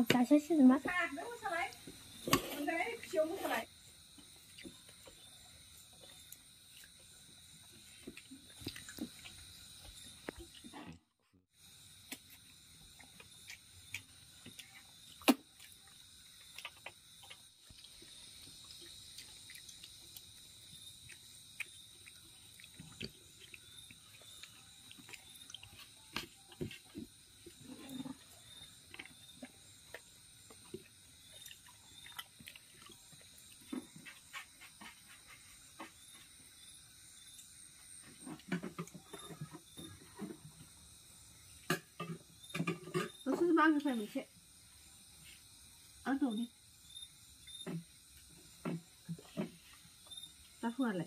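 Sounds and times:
chewing: 4.1s - 11.0s, 12.1s - 36.4s.

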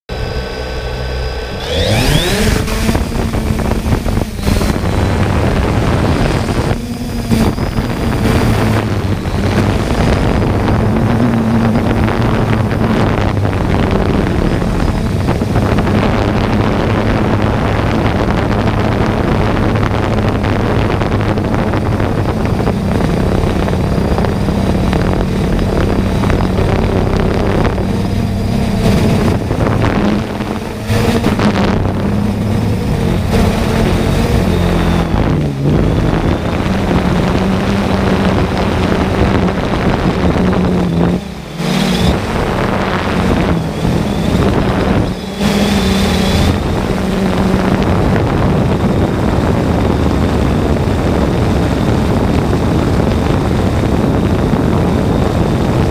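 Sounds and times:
drone propellers buzzing: 0.1s - 55.9s.

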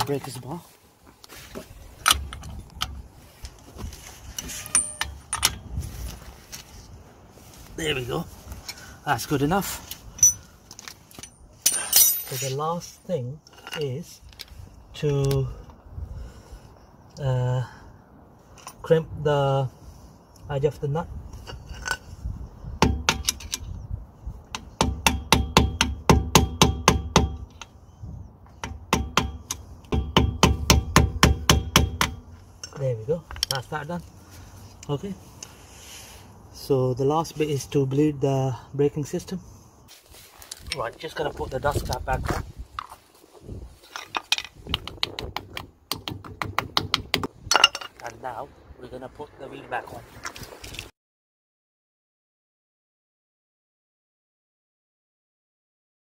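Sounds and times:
metal tools clinking and knocking: 4.4s - 5.7s, 10.1s - 12.8s, 13.4s - 14.6s, 21.4s - 22.2s, 32.5s - 33.7s, 43.8s - 44.6s, 47.5s - 48.1s
high metallic ring: 4.5s - 5.5s.

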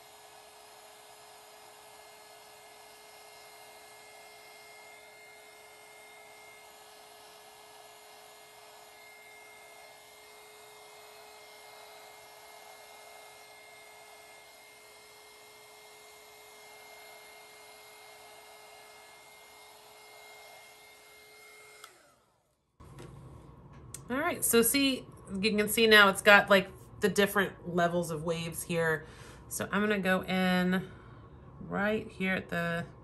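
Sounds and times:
heat gun fan whirring: 0.0s - 33.0s.

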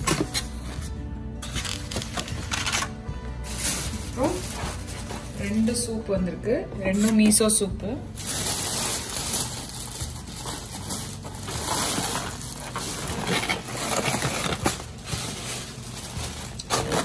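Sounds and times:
packaging rustling and crinkling: 1.4s - 5.8s, 8.2s - 17.0s.

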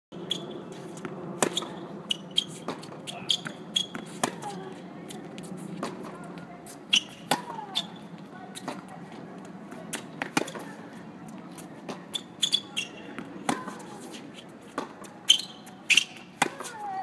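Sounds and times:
shoes squeaking on court: 0.2s - 17.0s
tennis ball hits and bounces: 0.8s - 4.6s, 7.0s - 8.9s, 9.7s - 10.8s, 11.6s - 16.9s.

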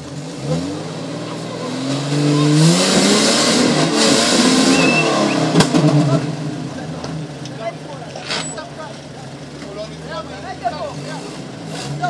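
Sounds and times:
engine revving hard: 0.0s - 6.8s, 10.8s - 12.0s.

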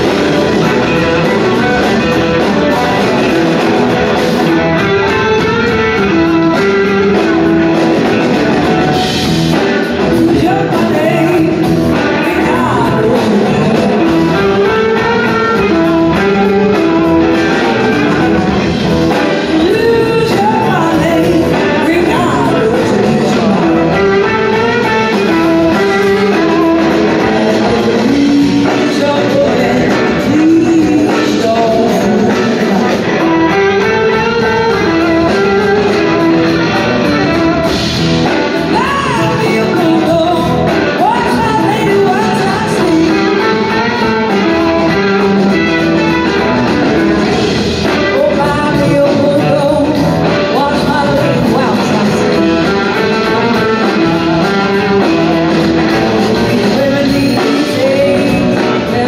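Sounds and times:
drum kits: 0.0s - 59.0s
electric guitars: 0.0s - 59.0s
live blues-rock band: 0.0s - 59.0s.

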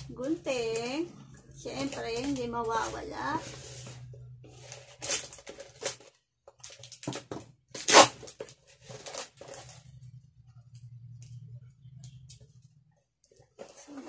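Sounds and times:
cardboard scraping: 1.9s - 6.1s
tape tearing: 4.7s - 9.8s
scissors slicing packing tape: 7.8s - 8.3s.

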